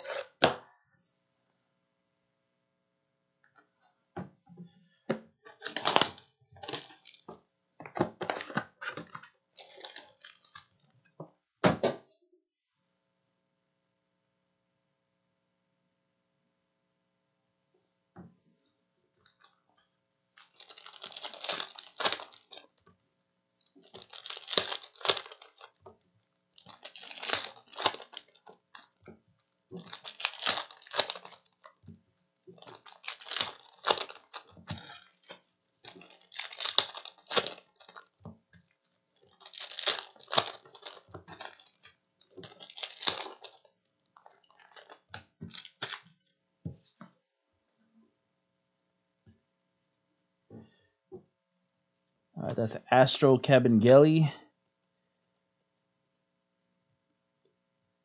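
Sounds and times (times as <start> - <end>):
foil wrapper tearing: 5.5 - 7.3, 9.6 - 10.7, 20.4 - 22.8, 23.8 - 25.8, 26.6 - 29.0, 29.8 - 31.8, 32.6 - 38.2, 39.2 - 46.2.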